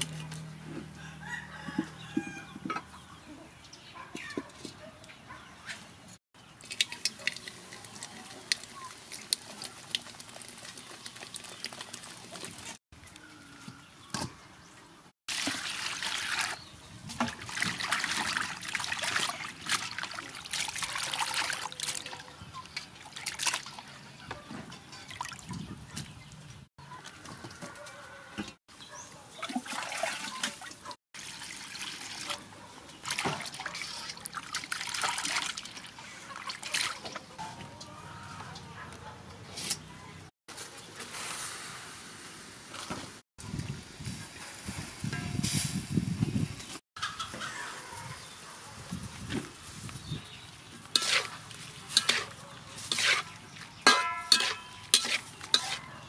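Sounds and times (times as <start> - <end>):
water splashing in metal bowl: 6.5 - 12.8, 15.3 - 23.9, 29.4 - 37.2, 50.9 - 55.9
cola pouring and fizzing: 6.6 - 12.8, 15.3 - 16.7, 29.5 - 32.4.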